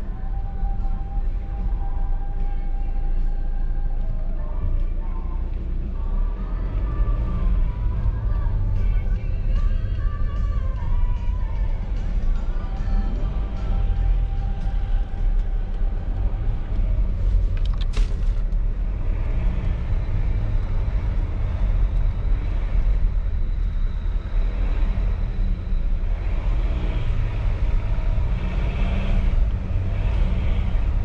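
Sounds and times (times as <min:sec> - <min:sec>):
diesel car engine rumble: 0:00.0 - 0:31.0.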